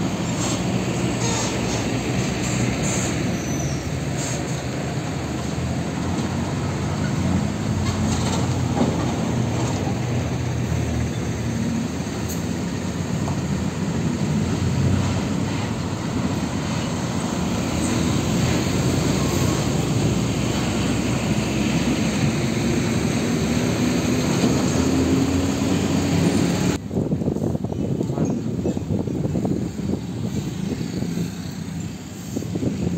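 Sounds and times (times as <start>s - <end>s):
heavy diesel trucks passing: 0.0s - 32.9s
vehicle engine speeding up: 5.4s - 26.8s.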